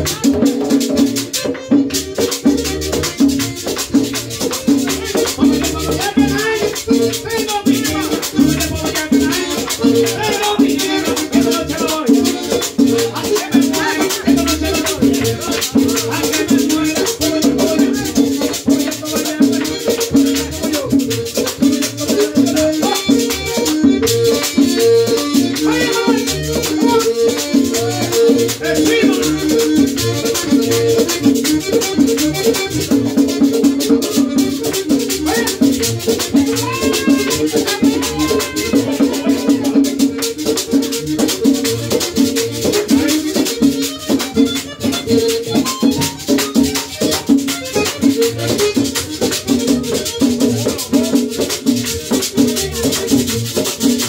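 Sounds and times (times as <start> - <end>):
fast dance music: 36.4 - 40.0.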